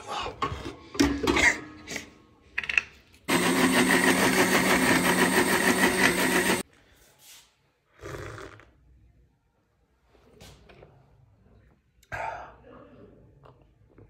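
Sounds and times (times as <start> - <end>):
electric blender running: 3.3 - 6.6.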